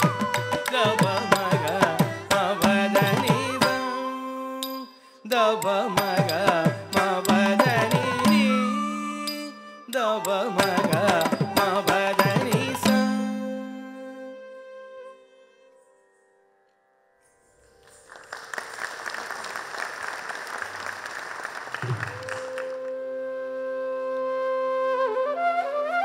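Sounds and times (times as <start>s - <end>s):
bamboo flute phrase: 5.6s - 11.9s, 21.8s - 26.0s
audience applause: 17.8s - 23.0s.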